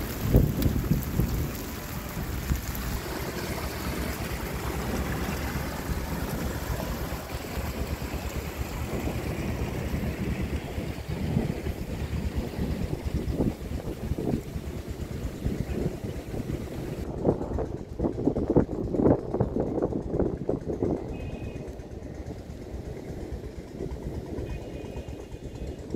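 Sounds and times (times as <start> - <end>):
water rushing down a channel: 0.0 - 17.2
wind buffeting microphone: 0.0 - 25.9.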